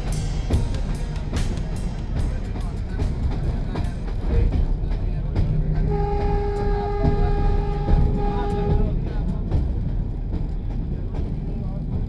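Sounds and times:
low rumble: 0.0s - 12.0s
train horn: 5.8s - 9.1s.

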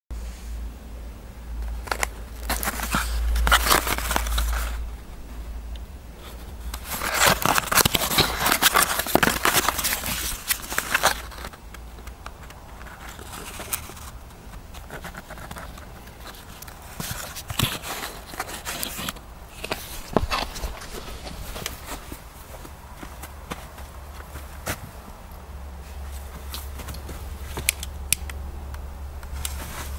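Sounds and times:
cardboard and paper rustling: 1.6s - 5.2s, 6.2s - 25.0s, 29.3s - 29.9s.

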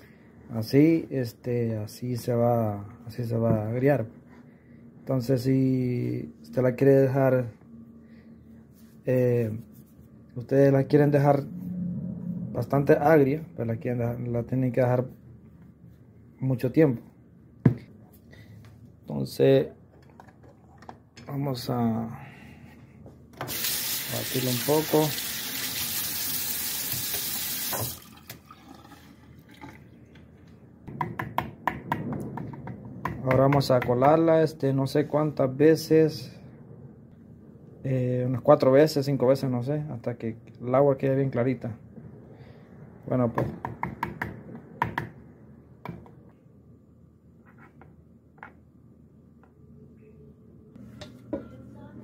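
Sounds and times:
low steady hum: 0.0s - 23.4s, 44.4s - 52.0s
water running from a tap: 23.5s - 29.6s.

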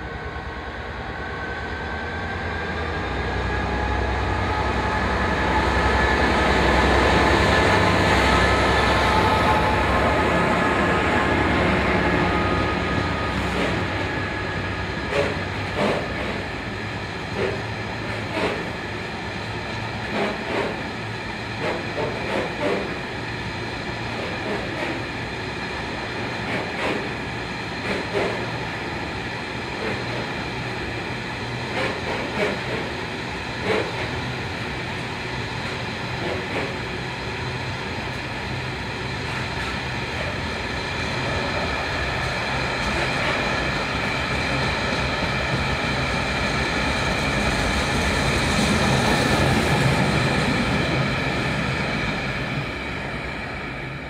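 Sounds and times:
freight train rumble: 0.0s - 54.0s.

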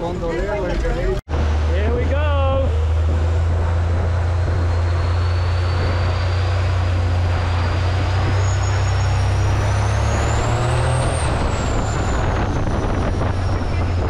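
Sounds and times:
boat engine running: 1.0s - 14.0s.

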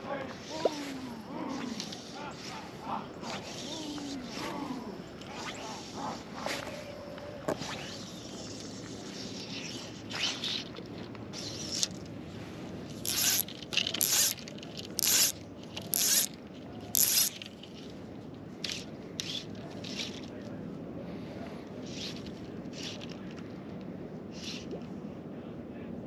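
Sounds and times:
fly line zipping through rod guides: 0.4s - 12.1s, 12.9s - 17.9s, 18.6s - 20.3s, 21.8s - 23.5s, 24.3s - 24.8s.

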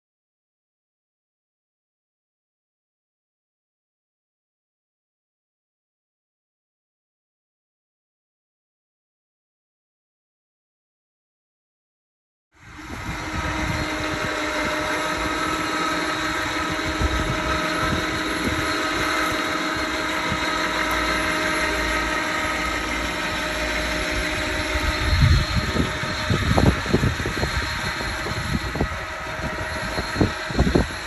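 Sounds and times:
truck engine idling: 13.2s - 29.8s.

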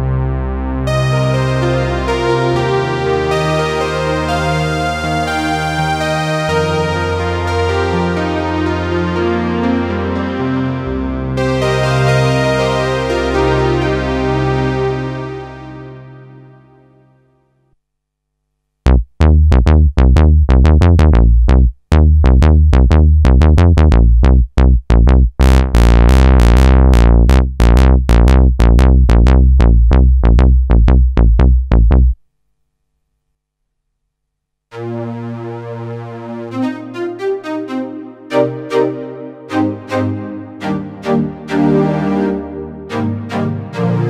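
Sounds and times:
synthesizer bass notes: 0.0s - 16.5s, 18.8s - 32.2s, 34.7s - 44.0s
sustained layered synthesizer notes: 0.0s - 17.2s, 34.7s - 44.0s.

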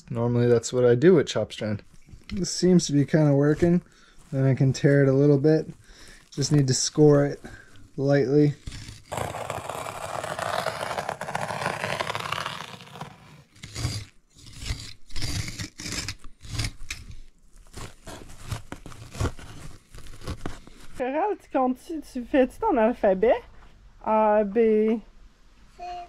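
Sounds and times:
tearing and crunching strokes: 2.1s - 21.0s
fiberglass mat tearing: 8.3s - 21.0s.

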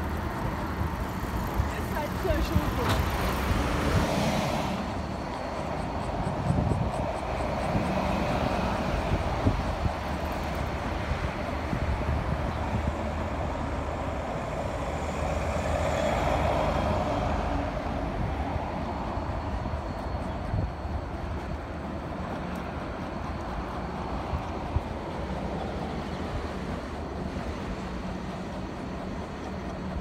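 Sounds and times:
tyre and street noise: 0.0s - 30.0s
wind buffeting microphone: 5.0s - 15.1s.

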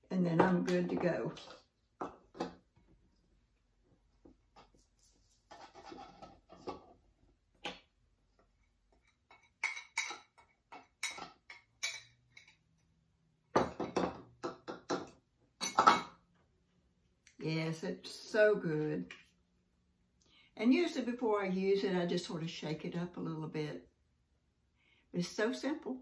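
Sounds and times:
glass and plastic clinking: 15.6s - 16.1s.

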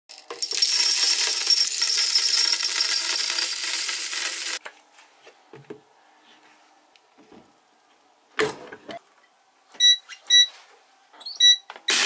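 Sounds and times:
coffee beans rattling into plastic: 0.1s - 4.6s.

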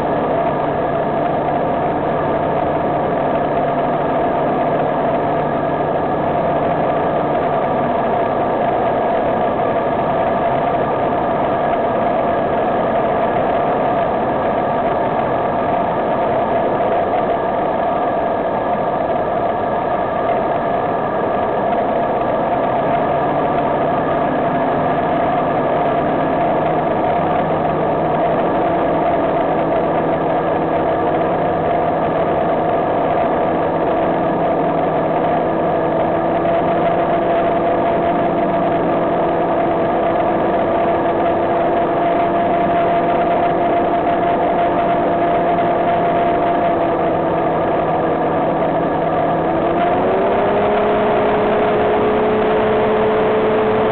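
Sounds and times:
aircraft engine running: 0.0s - 53.9s.

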